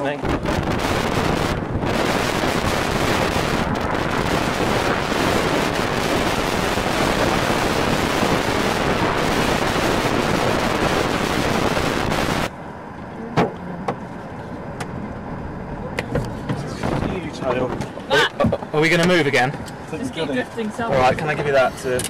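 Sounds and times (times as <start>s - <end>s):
wind buffeting microphone: 0.0s - 12.5s, 16.2s - 17.9s.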